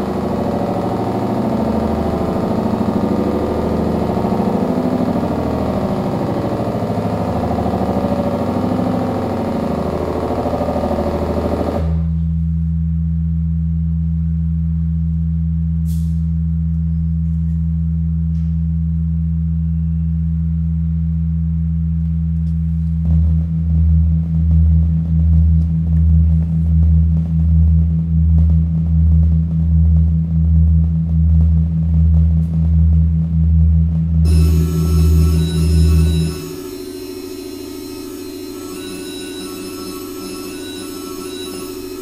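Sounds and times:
dense busy electronic noise: 0:00.0 - 0:12.2, 0:32.9 - 0:42.0
low drone of pure tones: 0:00.0 - 0:42.0.

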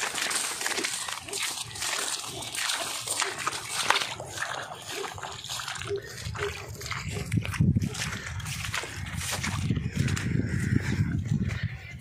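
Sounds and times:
footsteps squelching in mud: 0:00.0 - 0:12.0.

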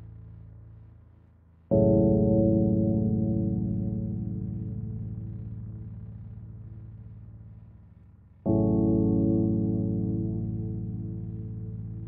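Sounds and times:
low sustained music chord: 0:01.7 - 0:07.5, 0:08.4 - 0:12.0.

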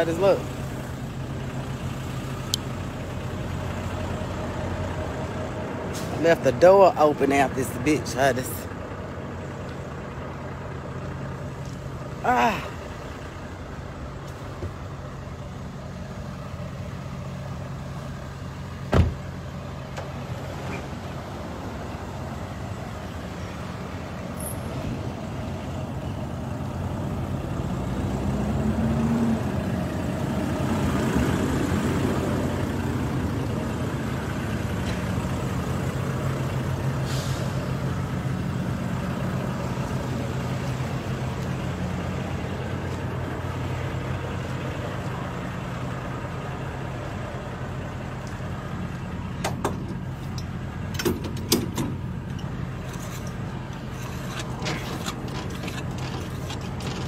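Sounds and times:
diesel truck engine idling: 0:00.0 - 0:57.0.

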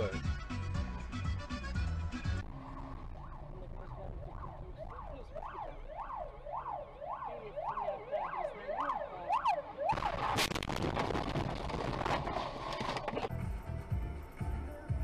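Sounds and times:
ambulance siren: 0:02.5 - 0:10.5
car crash impact: 0:09.9 - 0:13.3.

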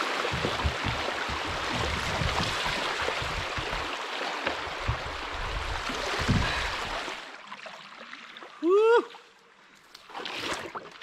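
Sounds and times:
water rushing over rocks: 0:00.0 - 0:07.3
low thumps: 0:00.1 - 0:06.8
short knocks: 0:00.2 - 0:03.9.

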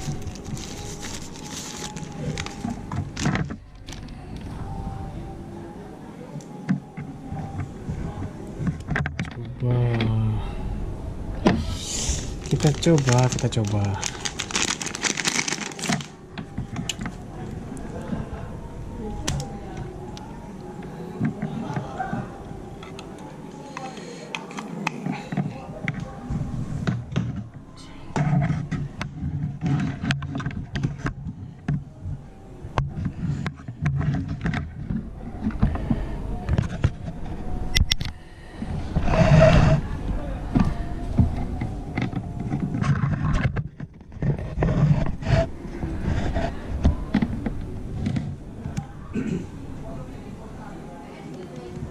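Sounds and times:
scraping rustle: 0:00.0 - 0:04.0
cable clicking and rustling: 0:00.0 - 0:04.6, 0:12.3 - 0:18.2, 0:32.8 - 0:38.2, 0:40.5 - 0:48.9.

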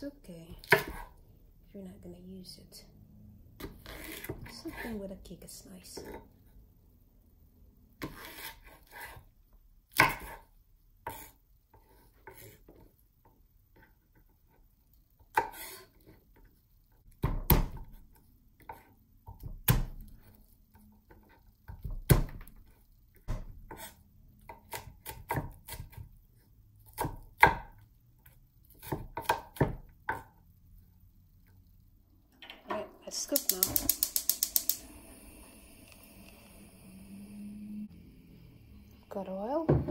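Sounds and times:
knife chopping on wooden board: 0:00.6 - 0:01.1, 0:09.9 - 0:10.4, 0:26.9 - 0:27.8, 0:28.8 - 0:30.3.

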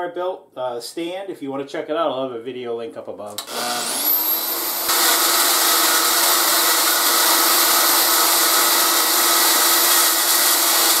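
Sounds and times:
band saw cutting steel: 0:03.4 - 0:11.0.

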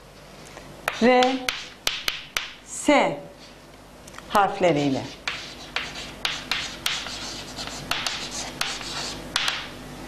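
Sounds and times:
chalk scratching on blackboard: 0:00.9 - 0:02.1, 0:05.0 - 0:09.6
chalk taps: 0:00.9 - 0:02.6, 0:05.1 - 0:09.7.

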